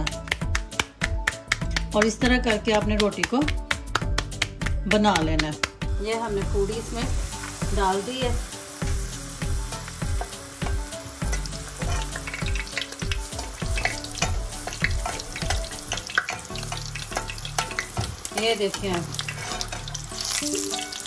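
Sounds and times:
oil sizzling and bubbling: 0:05.9 - 0:21.0
spatula scraping and tapping pan: 0:10.2 - 0:20.1.

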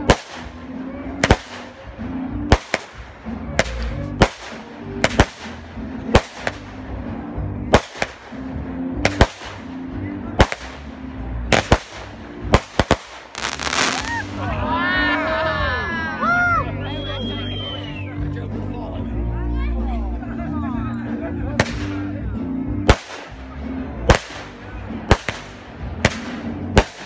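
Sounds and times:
fireworks bangs: 0:02.5 - 0:03.0, 0:03.6 - 0:06.8, 0:09.0 - 0:09.7, 0:11.5 - 0:14.4.

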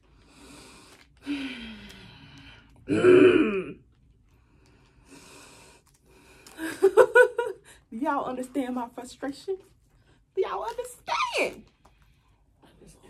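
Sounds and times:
woman sighing: 0:01.2 - 0:03.7
woman groaning: 0:02.9 - 0:03.8.

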